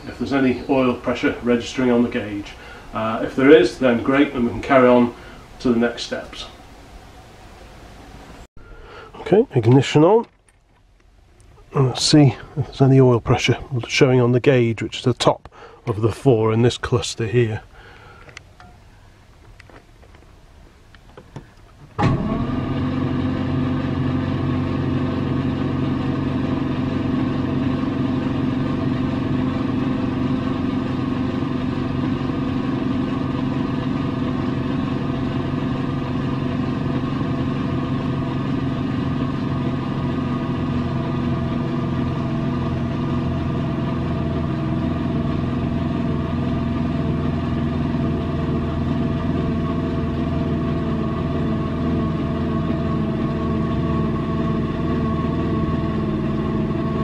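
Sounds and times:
starter motor cranking engine: 0:21.9 - 0:57.0.

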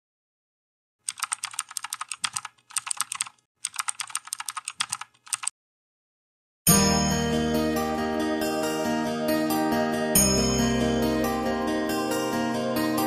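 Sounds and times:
keyboard typing clicks: 0:01.0 - 0:05.5.

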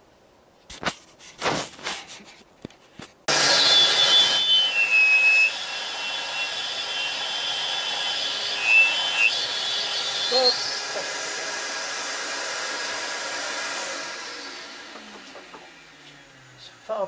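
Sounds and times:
faint whistle shifting in pitch: 0:03.3 - 0:11.0
vacuum cleaner running: 0:03.3 - 0:17.0.

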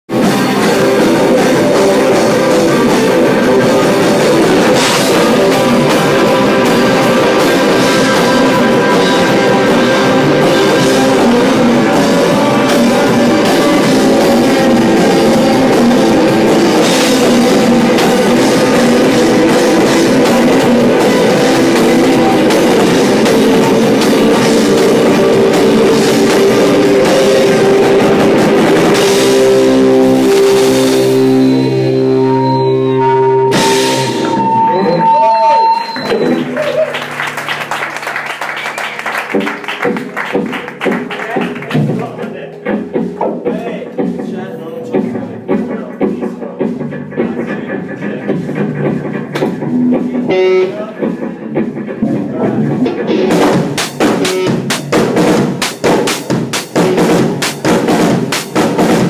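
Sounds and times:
electric guitar: 0:00.1 - 0:44.2, 0:44.9 - 0:59.0
drum kit: 0:00.1 - 0:59.0.

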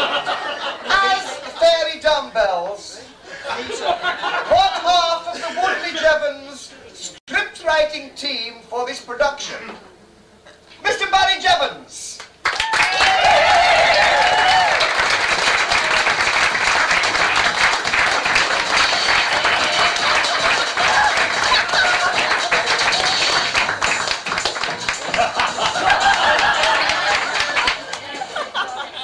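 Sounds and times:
audience clapping: 0:12.2 - 0:28.3
crowd shouting: 0:19.2 - 0:23.1.

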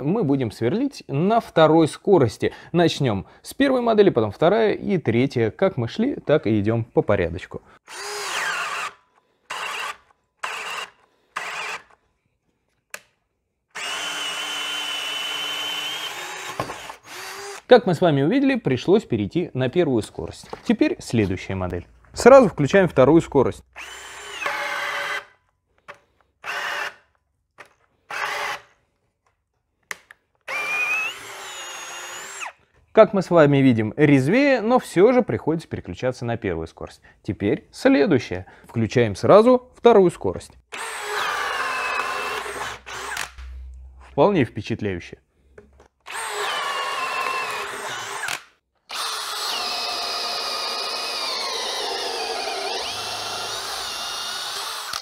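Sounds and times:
cordless drill boring into wood: 0:07.8 - 0:12.0, 0:13.7 - 0:17.7, 0:23.7 - 0:28.7, 0:30.4 - 0:32.6, 0:40.7 - 0:43.4, 0:46.0 - 0:55.0.

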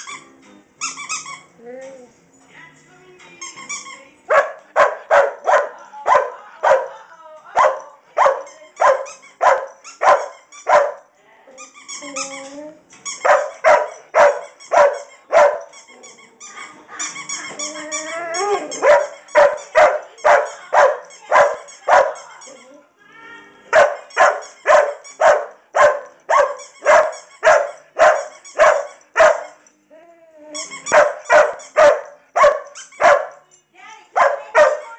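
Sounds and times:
dog whining: 0:00.9 - 0:02.2, 0:11.6 - 0:16.2, 0:17.3 - 0:20.5, 0:21.2 - 0:22.9, 0:30.4 - 0:33.3
dog barking: 0:04.3 - 0:07.0, 0:07.6 - 0:11.1, 0:13.2 - 0:15.7, 0:18.7 - 0:22.3, 0:23.7 - 0:29.6, 0:30.9 - 0:33.4, 0:34.2 - 0:34.9.

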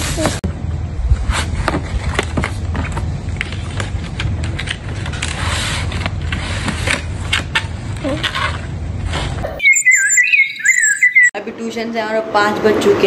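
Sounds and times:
cardboard and plastic rustling: 0:01.2 - 0:09.4.

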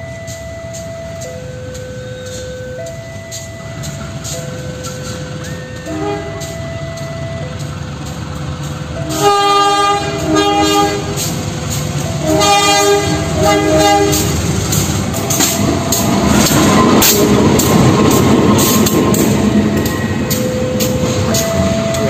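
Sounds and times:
locomotive engine passing: 0:01.1 - 0:22.0
multi-note locomotive horn: 0:05.6 - 0:07.6, 0:09.0 - 0:11.4, 0:12.0 - 0:15.7.

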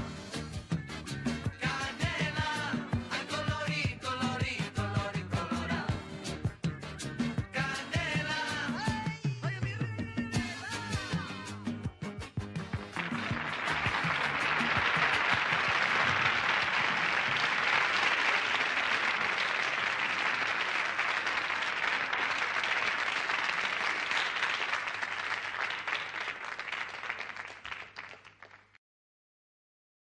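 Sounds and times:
audience applauding: 0:12.5 - 0:28.8.

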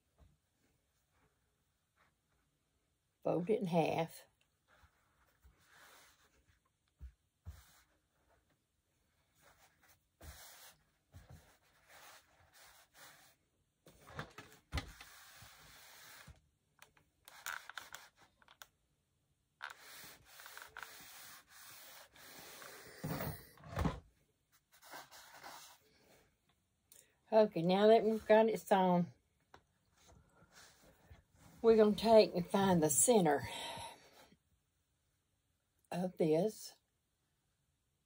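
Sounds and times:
fabric folded by hand: 0:00.0 - 0:03.2, 0:04.4 - 0:26.8
steam iron sliding over fabric: 0:14.9 - 0:16.4, 0:19.6 - 0:23.4.

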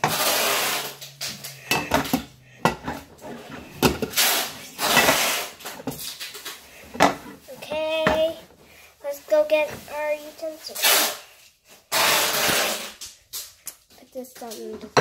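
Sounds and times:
low steady hum: 0:00.7 - 0:09.9
dishes and cutlery clattering: 0:01.1 - 0:04.2, 0:04.8 - 0:07.3.

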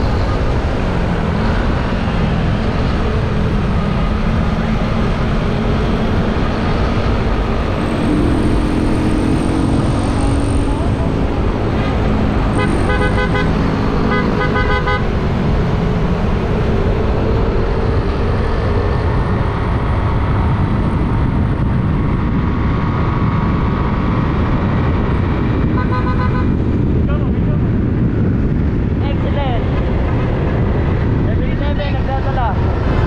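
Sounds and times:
motorcycle road noise: 0:00.0 - 0:33.0
wind rush on microphone: 0:00.0 - 0:33.0
vehicle horn honking: 0:12.5 - 0:15.1, 0:25.8 - 0:26.6.

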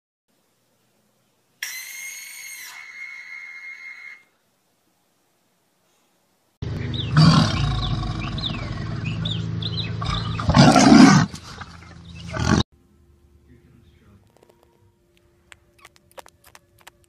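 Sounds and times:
tiger roaring: 0:07.0 - 0:09.3, 0:10.0 - 0:12.6.

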